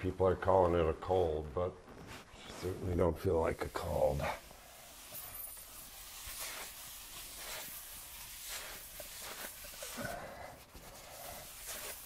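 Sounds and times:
paper towel scrubbing concrete floor: 2.4s - 12.0s.

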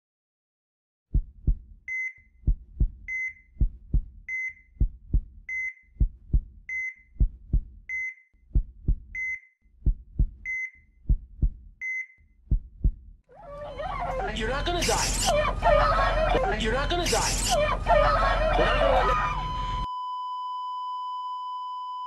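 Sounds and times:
heartbeat thumps: 1.1s - 1.8s, 2.4s - 7.9s, 8.5s - 11.7s, 12.5s - 13.2s
heart monitor beep: 1.9s - 2.2s, 3.0s - 6.1s, 6.7s - 8.2s, 8.8s - 9.4s, 10.4s - 10.8s, 11.8s - 12.1s, 19.5s - 22.0s.

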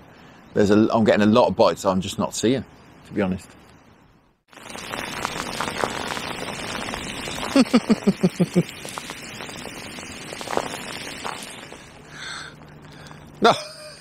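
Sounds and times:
heavy rain on water: 4.5s - 12.3s.

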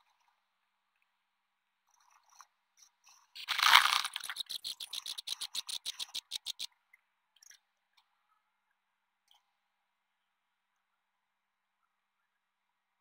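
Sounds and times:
rapid short clicks: 3.4s - 6.7s.

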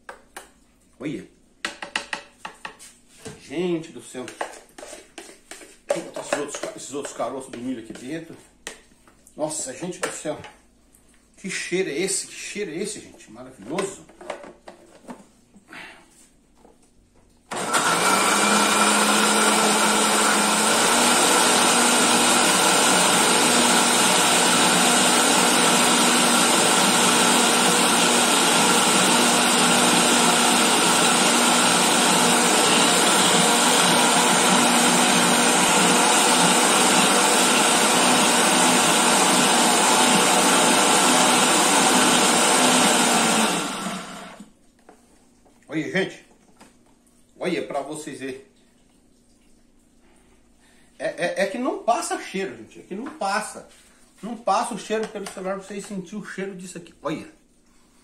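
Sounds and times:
electric blender grinding: 17.5s - 44.5s.

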